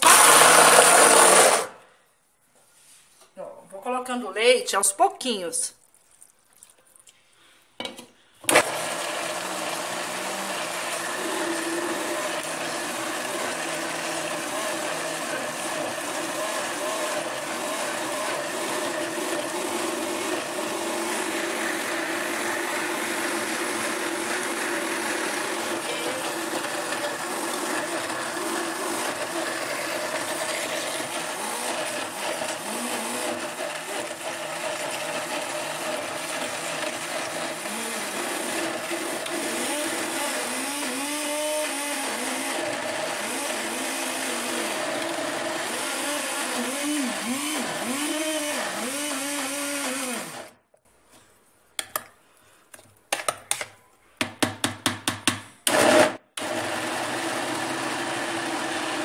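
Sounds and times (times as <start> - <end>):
blender motor running: 0.0 - 1.8, 8.5 - 50.6, 55.7 - 59.0.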